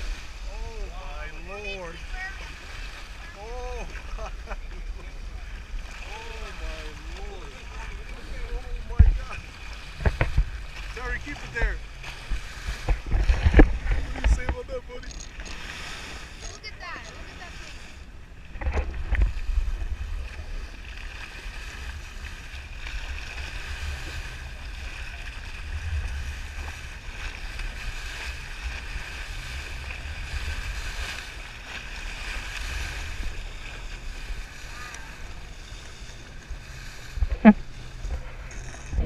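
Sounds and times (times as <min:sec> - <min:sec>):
boat engine hum: 0:00.0 - 0:39.0
water rushing past hull: 0:00.0 - 0:39.0
wind buffeting microphone: 0:08.4 - 0:14.9, 0:18.2 - 0:39.0.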